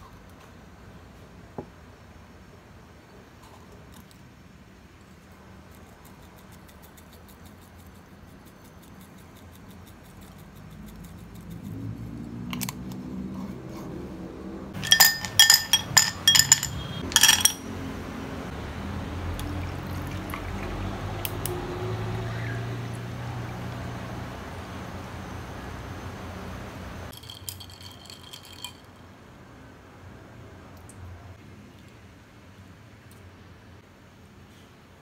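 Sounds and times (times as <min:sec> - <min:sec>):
ice cubes clinking in glass: 0:14.8 - 0:17.6, 0:27.1 - 0:28.9
drink pouring over ice: 0:27.1 - 0:28.8.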